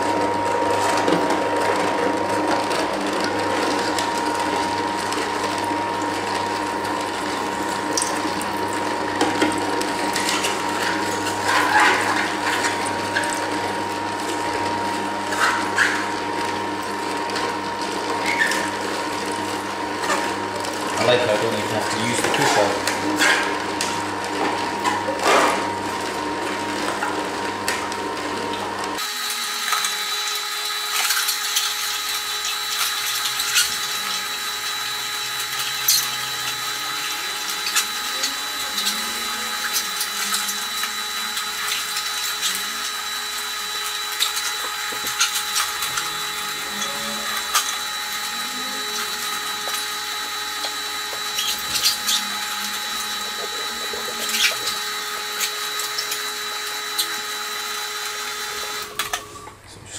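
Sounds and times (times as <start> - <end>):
juicer motor whine: 0.0 - 59.9
fruit cracking and crunching: 49.0 - 57.2.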